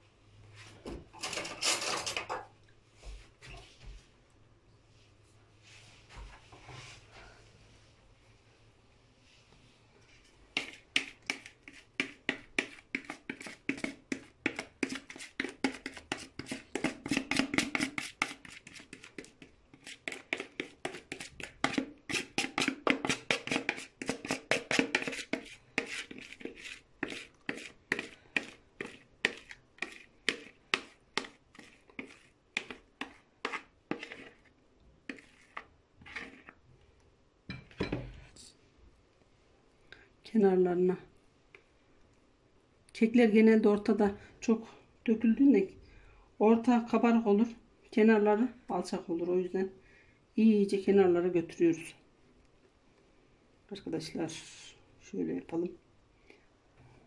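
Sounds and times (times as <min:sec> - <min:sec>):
spoon scraping and tapping bowl: 0:10.6 - 0:34.5, 0:35.1 - 0:36.6.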